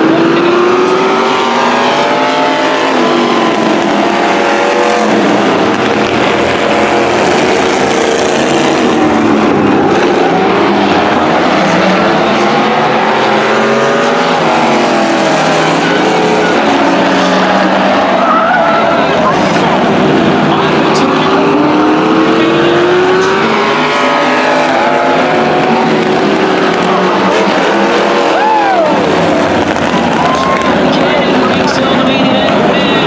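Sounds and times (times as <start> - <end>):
race car engines revving past: 0.0 - 33.0.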